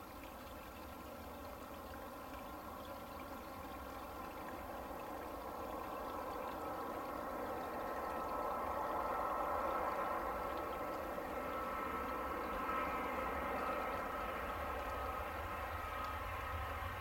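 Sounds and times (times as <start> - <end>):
jet engine rush with fan whine: 4.4 - 17.0.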